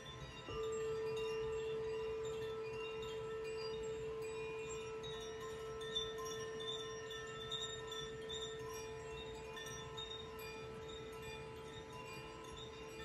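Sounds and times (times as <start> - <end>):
bamboo chime tinkling: 0.0 - 13.0
singing bowl held tone: 0.0 - 13.0.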